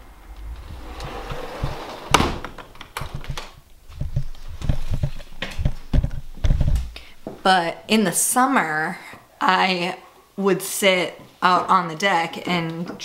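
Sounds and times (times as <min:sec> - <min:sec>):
wind rumble on microphone: 0:00.0 - 0:06.9.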